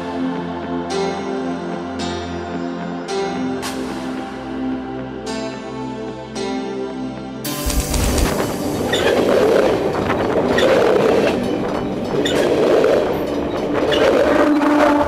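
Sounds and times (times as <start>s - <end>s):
train wagons rolling: 7.6s - 15.0s.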